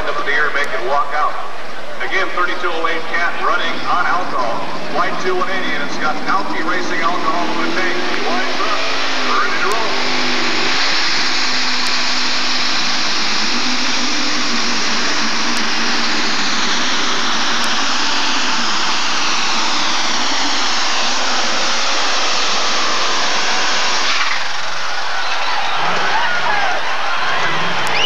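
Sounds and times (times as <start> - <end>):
tractor engine running flat out: 3.9 - 26.1.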